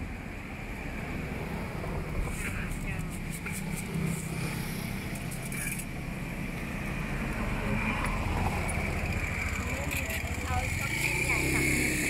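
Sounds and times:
small engine running: 0:08.2 - 0:12.0.

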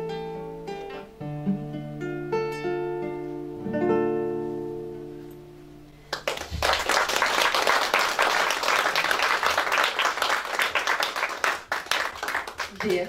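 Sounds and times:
classical guitar chord ringing: 0:00.0 - 0:06.0
audience applause: 0:06.1 - 0:13.0.

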